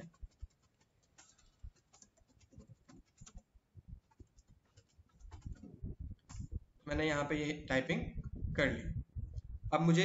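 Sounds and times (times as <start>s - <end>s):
computer keyboard typing: 0.0s - 6.7s.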